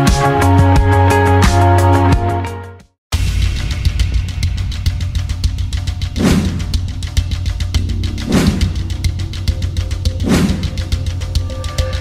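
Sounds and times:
music with steady beat: 3.2s - 12.0s.

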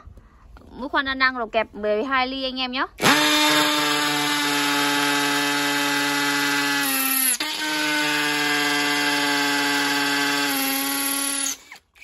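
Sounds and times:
cordless drill boring into brick: 3.0s - 12.0s.

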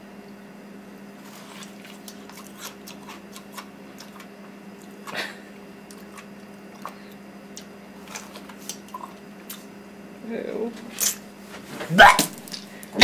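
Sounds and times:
steady low hum: 0.0s - 13.0s
chewing crunchy ice: 1.2s - 5.2s, 5.8s - 9.7s.

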